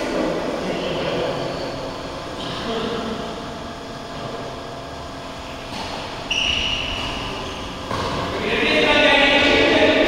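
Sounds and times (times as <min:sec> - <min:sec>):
indoor sports hall background noise: 0:00.0 - 0:10.0
high squeak: 0:06.3 - 0:07.8.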